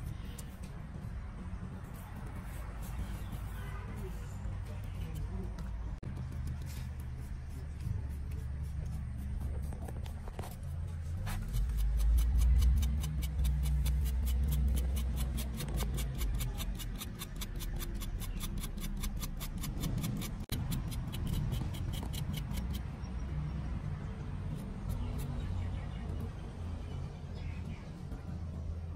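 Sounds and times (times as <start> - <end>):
knife scraping a leaf: 6.5 - 22.9.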